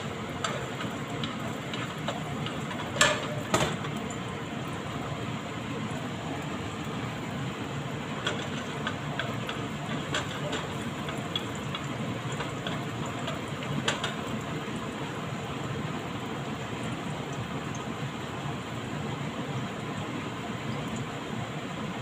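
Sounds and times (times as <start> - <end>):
oil pops and ticks: 0.0 - 4.2, 8.2 - 14.5
garlic sizzling in oil: 0.0 - 21.7.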